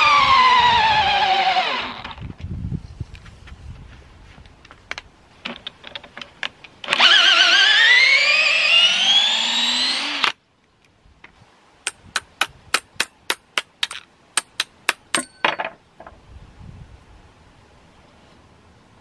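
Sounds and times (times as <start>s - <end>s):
cordless drill motor whine: 0.0s - 2.2s, 6.9s - 10.4s.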